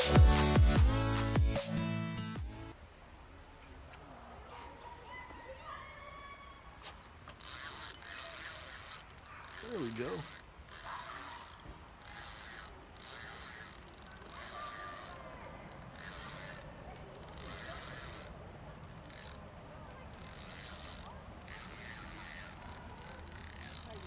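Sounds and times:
fishing reel cranking: 0:07.3 - 0:19.4, 0:20.1 - 0:24.0.

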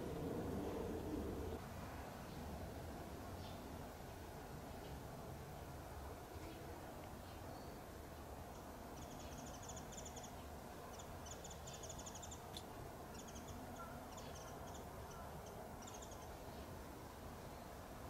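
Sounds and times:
low steady rumble: 0:00.0 - 0:01.6
small bird ticking calls: 0:08.5 - 0:16.4.

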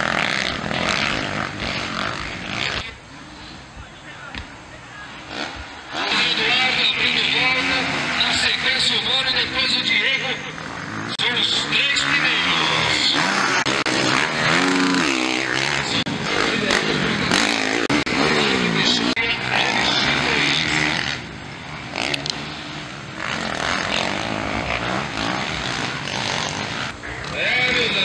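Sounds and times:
dirt bike engines revving: 0:00.0 - 0:28.0.

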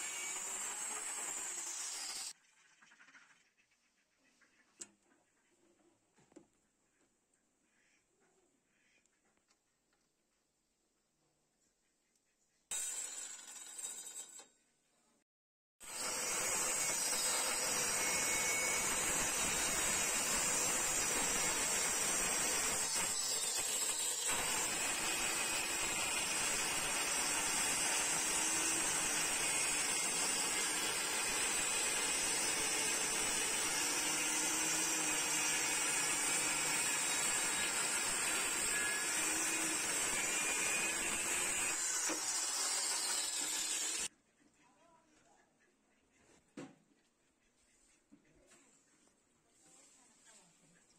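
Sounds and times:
circular saw cutting wood: 0:00.0 - 0:02.4, 0:12.7 - 0:14.5, 0:15.8 - 0:44.1.

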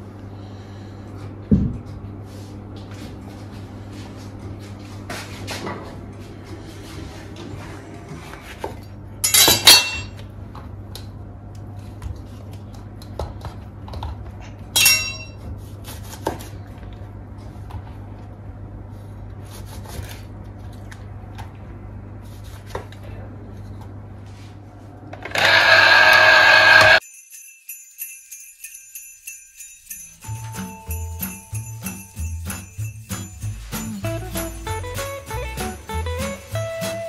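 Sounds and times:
dishes and glassware clinking: 0:09.2 - 0:10.2, 0:14.8 - 0:15.4
small bells jingling: 0:27.0 - 0:37.0.

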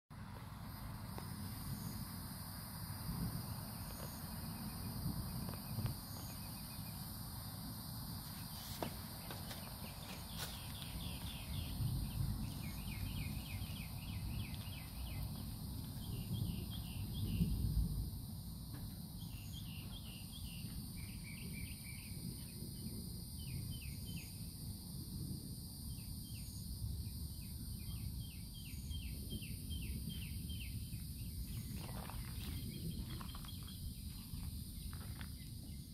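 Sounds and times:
crickets trilling: 0:00.1 - 0:35.9.

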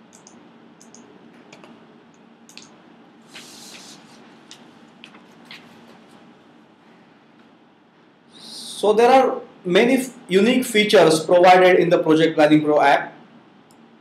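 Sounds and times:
soft clicks: 0:00.1 - 0:02.8
short hiss: 0:03.3 - 0:04.2.

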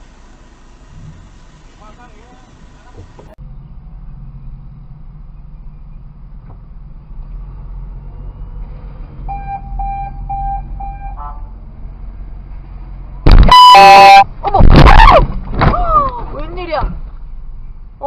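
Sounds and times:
short high beeps: 0:13.3 - 0:14.2.

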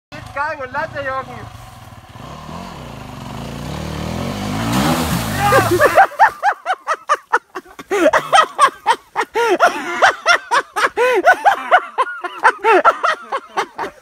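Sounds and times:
person laughing hard: 0:05.3 - 0:14.0.

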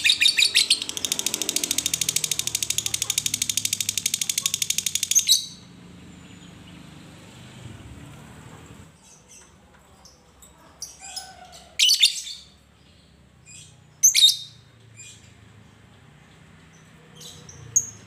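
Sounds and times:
shrill bird calls: 0:00.0 - 0:05.7, 0:11.0 - 0:12.6
bird chirping: 0:00.0 - 0:07.3, 0:08.9 - 0:18.0.

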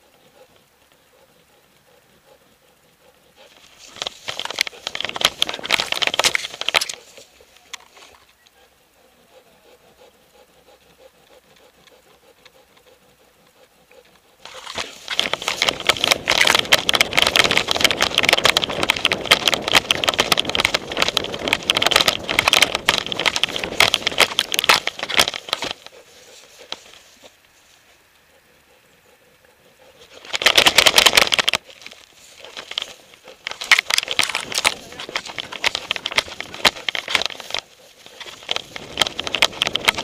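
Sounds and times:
scraping and rustling on camera: 0:03.2 - 0:08.4, 0:14.0 - 0:28.1, 0:29.1 - 0:40.0.

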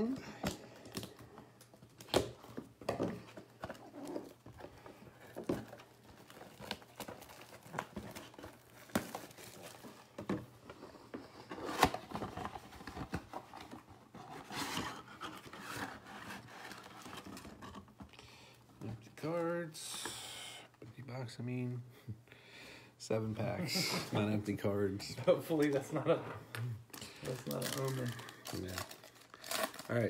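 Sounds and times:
plastic crinkling: 0:26.9 - 0:30.0.

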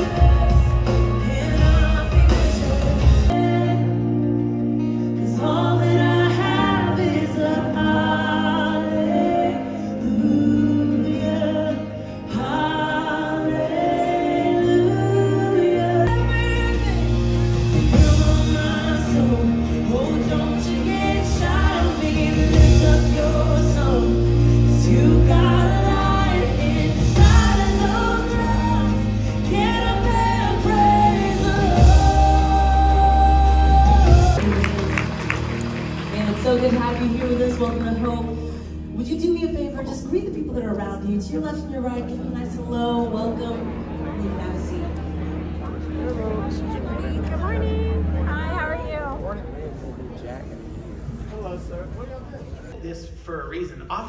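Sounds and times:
group of voices singing: 0:00.0 - 0:04.5, 0:05.2 - 0:35.5
steady bass: 0:00.0 - 0:49.1
held instrumental accompaniment: 0:00.0 - 0:51.2.

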